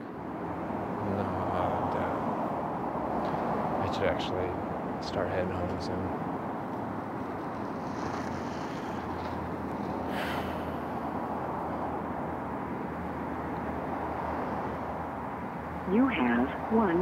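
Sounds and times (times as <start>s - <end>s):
outdoor background rumble: 0.0s - 17.0s.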